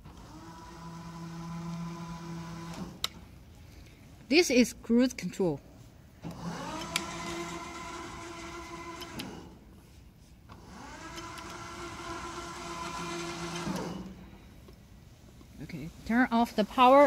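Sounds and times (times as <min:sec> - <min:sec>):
electric motors whining: 0:00.0 - 0:03.4, 0:06.2 - 0:09.8, 0:10.5 - 0:14.8.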